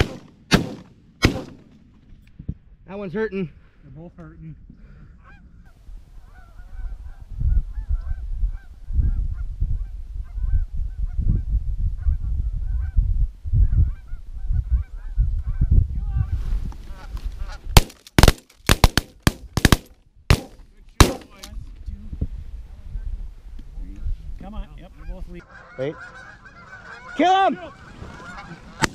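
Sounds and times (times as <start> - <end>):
rapid shotgun shots: 0.0 - 1.6, 17.8 - 21.5
wind rumble on microphone: 3.9 - 17.8, 21.4 - 25.4
geese honking: 24.8 - 28.9.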